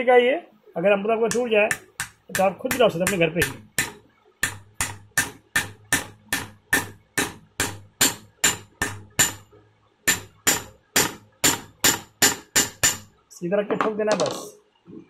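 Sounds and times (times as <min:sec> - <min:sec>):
hammer tapping metal: 0:01.3 - 0:13.2.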